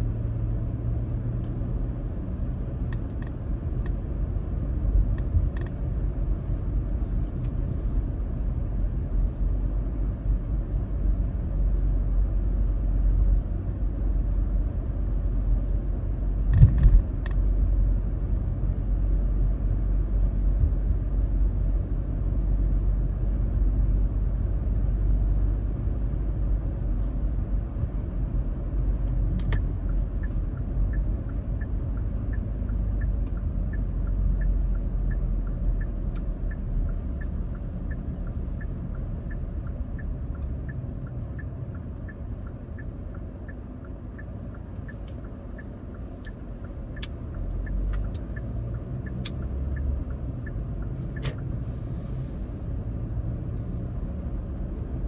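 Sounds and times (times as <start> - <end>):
engine and tyre rumble: 0.0 - 55.0
turn signal ticking: 0.3 - 9.4, 27.4 - 55.0.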